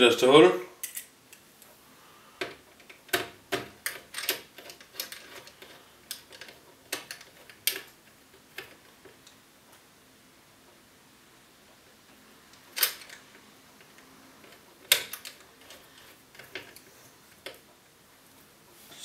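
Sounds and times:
small metal parts clicking: 2.4s - 7.9s.

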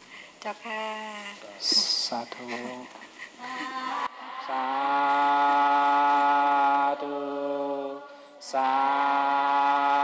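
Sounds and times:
congregation chanting in unison: 3.7s - 10.0s.

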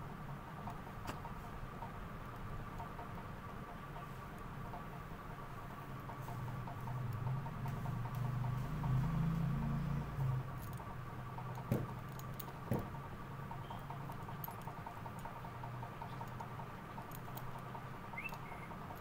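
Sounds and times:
small clicks: 13.6s - 19.0s.

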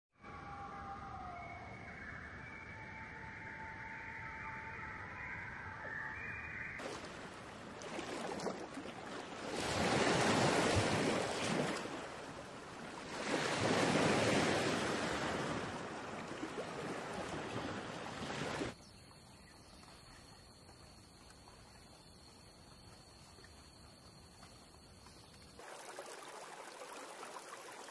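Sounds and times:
wind: 0.2s - 27.9s
surf washing against rocks: 6.8s - 18.7s.

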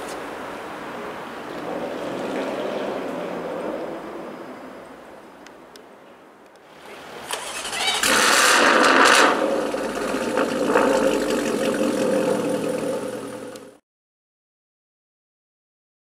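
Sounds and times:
car engine starting and idling: 7.2s - 13.8s.

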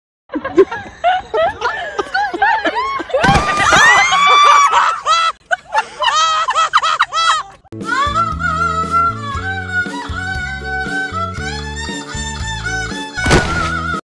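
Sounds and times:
people shrieking and laughing: 0.3s - 7.7s.

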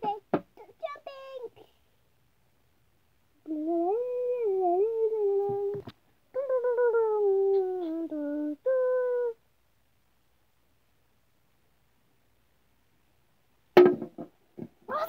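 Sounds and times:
child humming: 3.4s - 5.8s, 6.4s - 9.4s
small knock: 13.8s - 14.8s.

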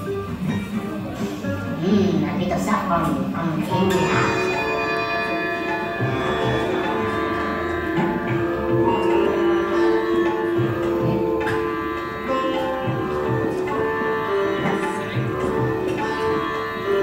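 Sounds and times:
plucked strings: 0.0s - 17.0s
low hand-drum strokes: 3.2s - 17.0s
held drone: 3.7s - 17.0s.

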